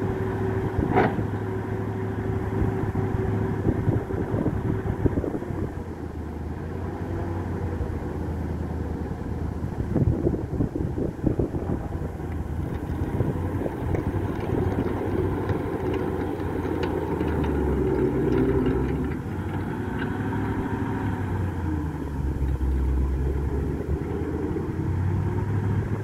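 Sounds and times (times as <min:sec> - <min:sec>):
engine running at low speed: 0:00.0 - 0:26.0
track links ticking: 0:12.3 - 0:20.8.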